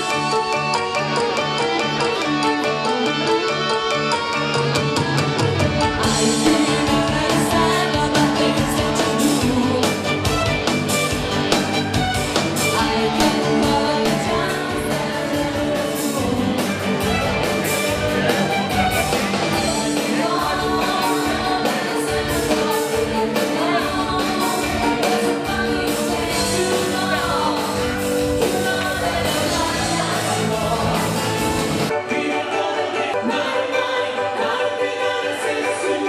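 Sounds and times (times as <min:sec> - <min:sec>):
drums: 0:00.0 - 0:32.2
live rock and roll band: 0:00.0 - 0:33.6
electric guitar: 0:00.0 - 0:34.6
person singing: 0:05.9 - 0:10.5, 0:12.6 - 0:36.0.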